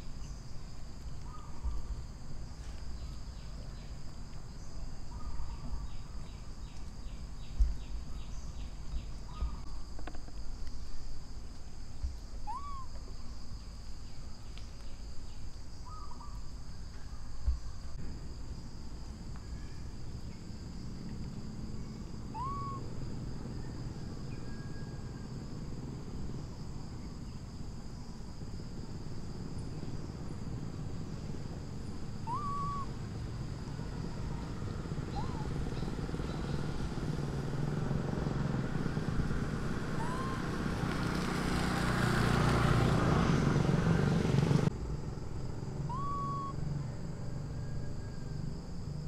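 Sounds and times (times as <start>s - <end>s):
rising and falling whistled call: 12.4s - 12.9s, 22.3s - 22.9s, 32.2s - 32.9s, 35.1s - 36.6s, 40.0s - 40.6s, 45.9s - 46.6s.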